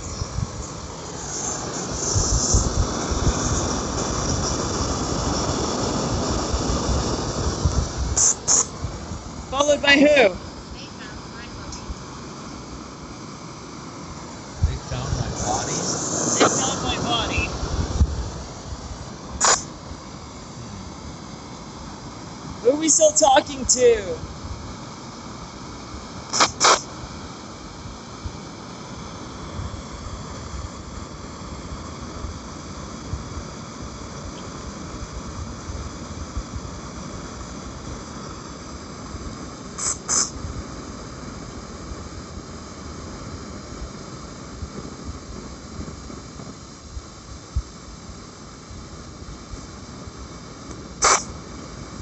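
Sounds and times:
wind buffeting microphone: 0.0 - 10.0, 14.6 - 19.4
brief double clicks: 26.3 - 26.8, 51.0 - 51.3.

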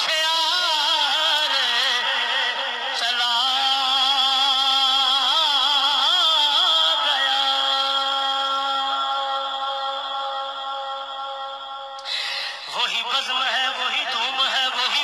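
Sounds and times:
person singing devotional song: 0.0 - 15.0.

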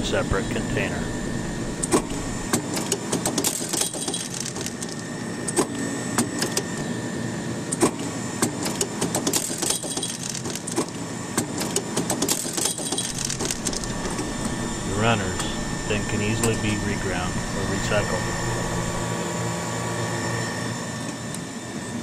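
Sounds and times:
machine humming with faint whine: 0.0 - 22.0
sharp mechanical clicks: 1.8 - 6.8, 7.7 - 14.3.

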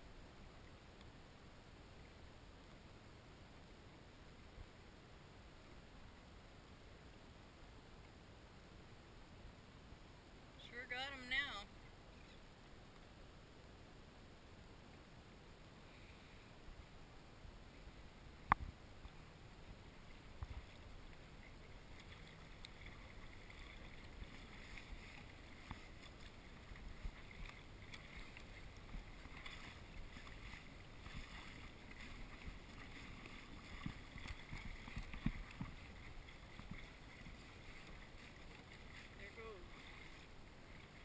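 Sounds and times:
water lapping against kayak hull: 17.8 - 41.0.

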